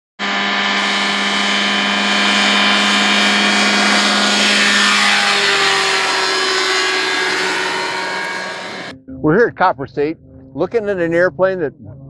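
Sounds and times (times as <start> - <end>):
ultralight aircraft engine passing: 0.2 - 8.9.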